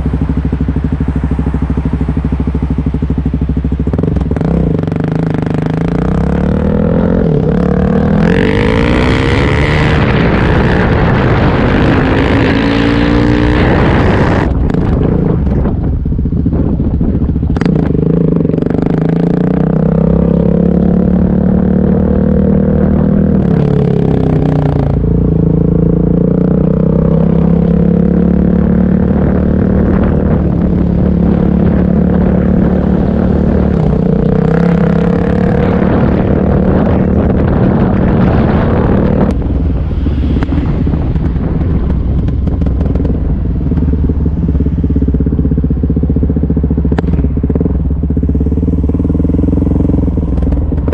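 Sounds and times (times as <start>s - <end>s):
motorcycle engine revving: 0.0s - 50.9s.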